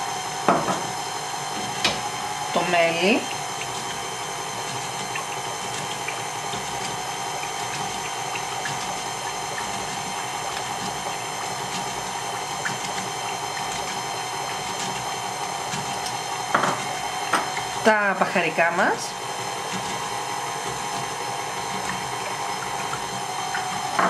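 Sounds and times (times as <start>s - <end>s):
stand mixer running: 0.0s - 24.0s.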